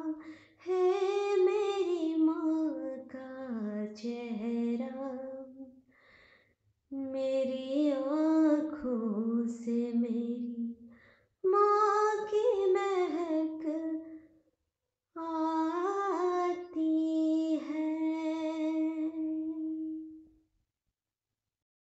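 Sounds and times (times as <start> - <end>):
woman singing wordless melody: 0.0 - 5.7, 6.9 - 10.8, 11.4 - 14.2, 15.2 - 20.3.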